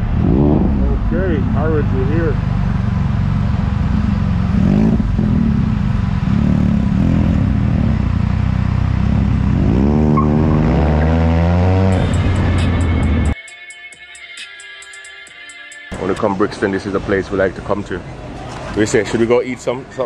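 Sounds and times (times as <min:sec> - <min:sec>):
motorcycle engine revving: 0:00.0 - 0:13.4.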